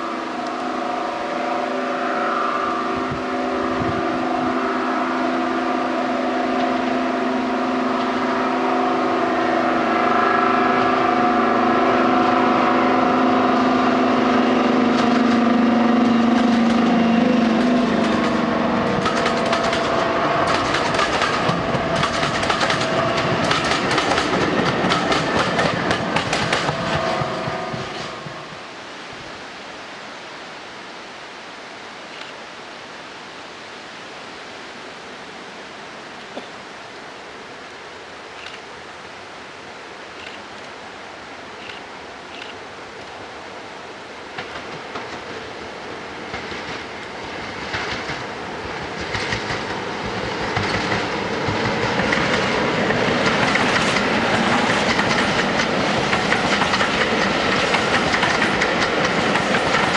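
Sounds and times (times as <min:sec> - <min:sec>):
diesel train passing: 0:00.0 - 0:29.0, 0:39.4 - 0:59.9
wheels clicking over rail joints: 0:16.2 - 0:28.5, 0:44.3 - 0:59.9.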